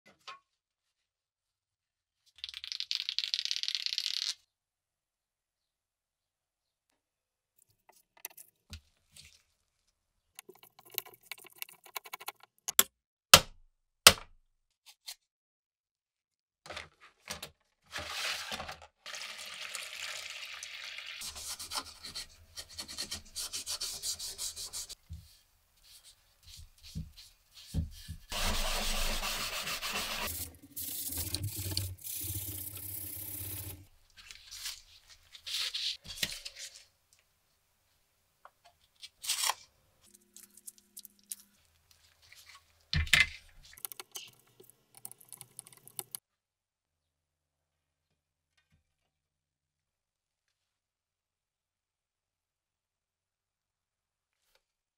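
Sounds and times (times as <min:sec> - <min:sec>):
sanding wooden handle: 0:21.2 - 0:25.0, 0:27.7 - 0:30.6.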